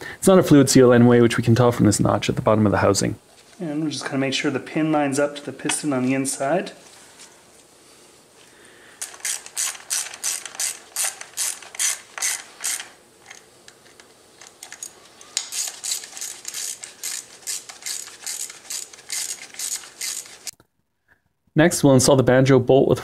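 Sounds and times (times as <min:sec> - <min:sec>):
socket ratchet clicking: 0:09.0 - 0:20.5.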